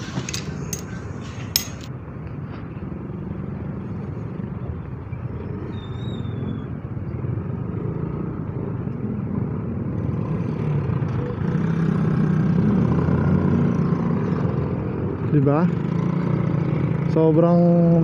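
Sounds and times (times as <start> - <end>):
road noise: 0.0 - 18.0.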